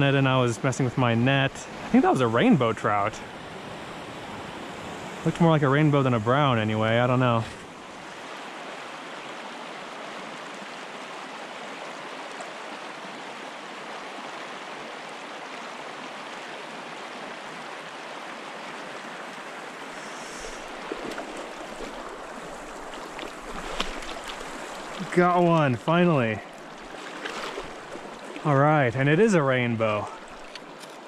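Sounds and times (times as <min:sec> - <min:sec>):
creek rushing over riffles: 0:00.0 - 0:07.8, 0:19.8 - 0:30.6.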